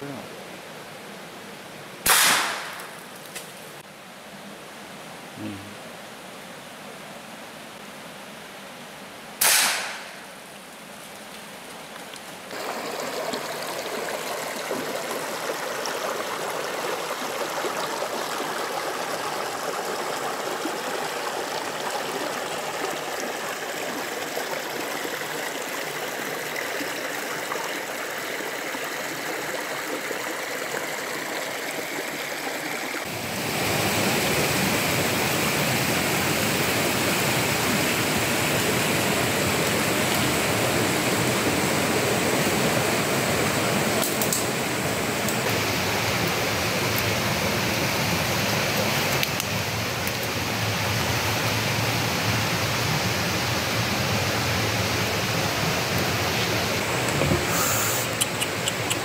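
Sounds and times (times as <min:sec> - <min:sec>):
water rushing over stones: 0:12.4 - 0:59.0.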